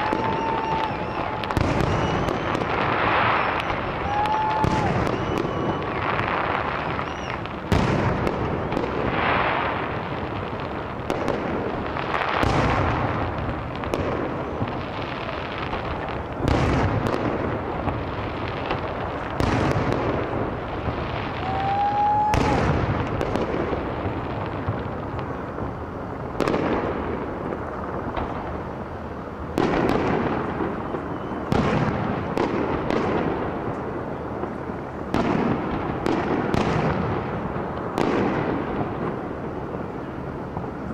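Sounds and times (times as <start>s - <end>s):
firework whistle rising: 0.0s - 9.7s, 20.9s - 23.2s, 30.3s - 32.0s
fireworks banging and crackling: 0.0s - 40.9s.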